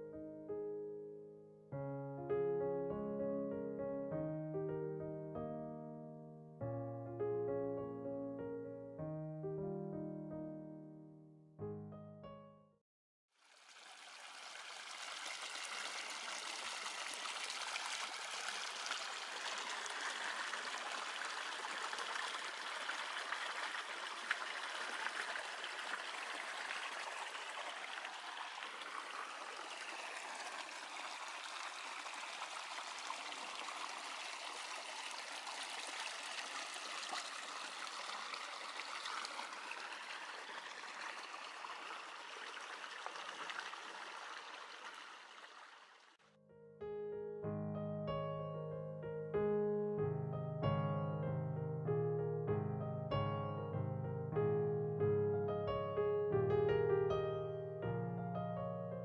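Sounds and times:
stream rippling: 0:13.4 - 0:46.2.

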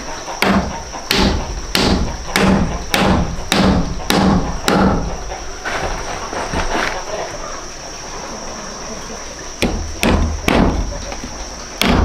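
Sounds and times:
hammer striking nail in wood: 0:00.4 - 0:05.1, 0:09.6 - 0:10.8, 0:11.8 - 0:12.0.

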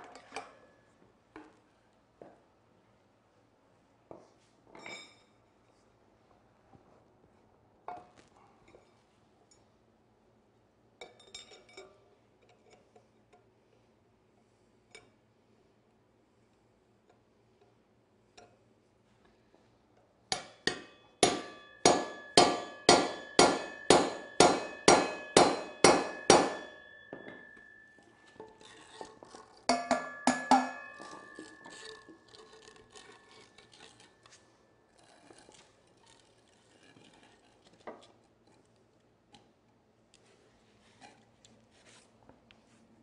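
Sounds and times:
hammer striking metal: 0:20.3 - 0:29.0, 0:29.6 - 0:32.4.

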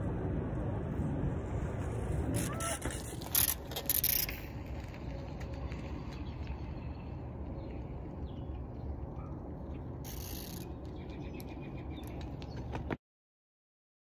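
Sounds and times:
low outdoor rumble: 0:00.0 - 0:13.0
bicycle passing close: 0:00.9 - 0:08.6, 0:10.0 - 0:12.9.

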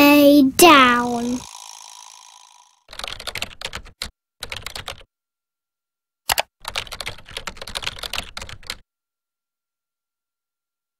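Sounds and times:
rapid typing on keyboard: 0:02.9 - 0:05.1, 0:06.3 - 0:08.8
loud keyboard click: 0:06.3 - 0:08.8.

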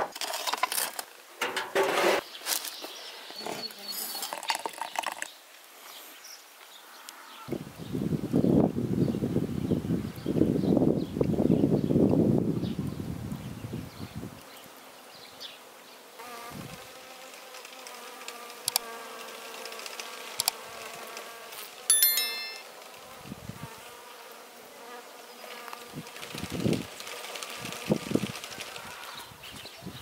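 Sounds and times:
bright high chime: 0:21.9 - 0:22.8.

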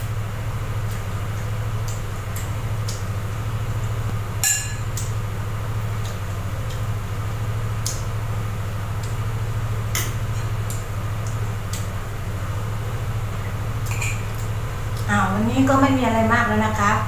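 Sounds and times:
steady low hum: 0:00.0 - 0:17.0
metal spoon clinking on pot: 0:04.4 - 0:04.9.

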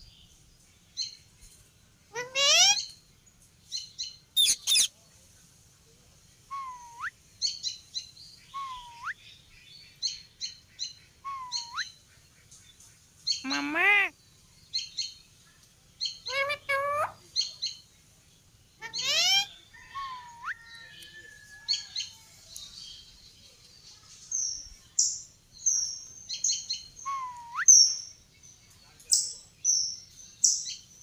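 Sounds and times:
parakeet squawks: 0:02.2 - 0:02.8, 0:04.4 - 0:04.9, 0:18.8 - 0:19.5
parakeets chirping and whistling: 0:04.4 - 0:04.9.

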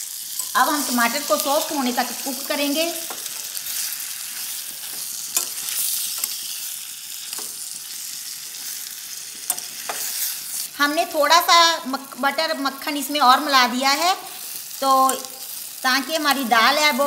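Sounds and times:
vegetables sizzling in butter: 0:00.0 - 0:17.0
spoon clinking against pan: 0:05.3 - 0:06.4, 0:09.4 - 0:10.2.

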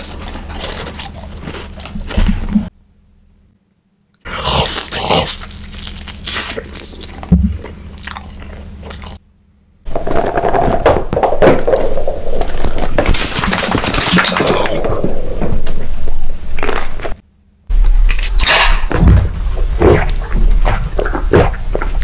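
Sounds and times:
person crunching food: 0:00.0 - 0:02.5, 0:04.3 - 0:09.2, 0:16.5 - 0:17.2.

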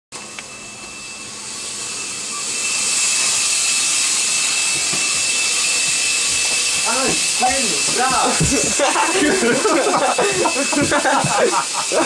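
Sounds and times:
thin high whistle: 0:00.5 - 0:07.5
shower spray hissing: 0:01.4 - 0:12.0.

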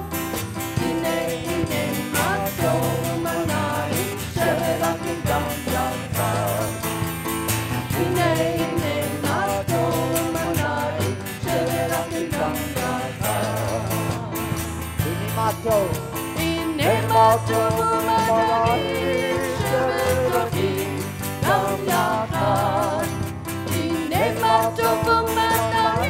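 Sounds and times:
person singing: 0:00.8 - 0:06.9, 0:07.9 - 0:26.0.

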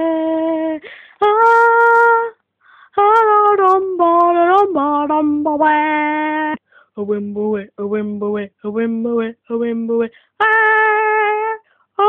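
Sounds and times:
person breathing: 0:00.8 - 0:01.2, 0:02.6 - 0:03.0, 0:06.6 - 0:07.0, 0:10.1 - 0:10.4, 0:11.6 - 0:11.9.

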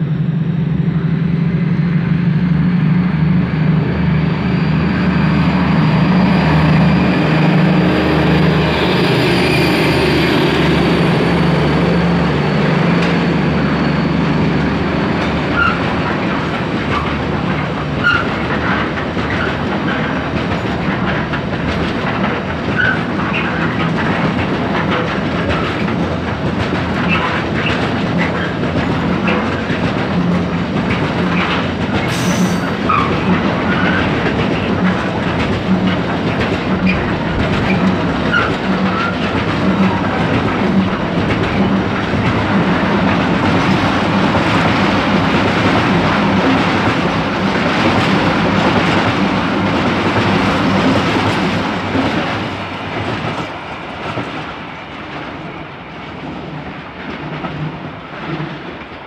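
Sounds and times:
train wheels clattering over rail joints: 0:07.6 - 0:59.0
wheel squeals: 0:12.2 - 0:20.2, 0:22.8 - 0:24.0, 0:31.3 - 0:34.7, 0:36.8 - 0:40.2.

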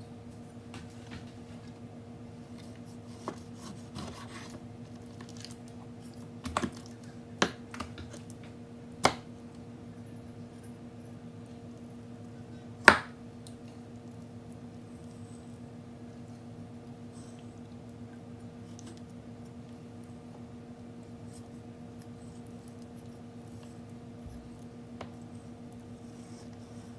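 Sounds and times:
steady low hum: 0:00.0 - 0:26.9
knife slicing meat: 0:03.1 - 0:04.6.

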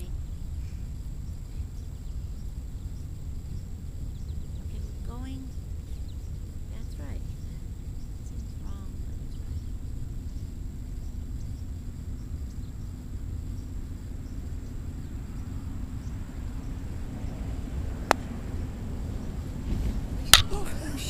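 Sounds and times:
low rumble: 0:00.0 - 0:21.0
croquet mallet striking ball: 0:20.3 - 0:20.5.

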